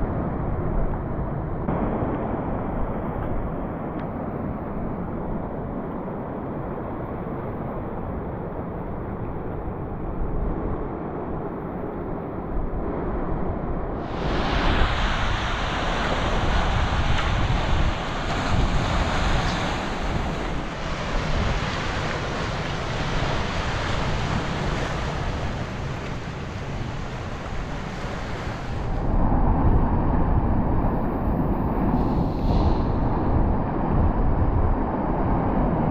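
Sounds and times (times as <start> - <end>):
wind on microphone: 0.0 - 35.9
ocean surf breaking on rocks: 14.0 - 29.1.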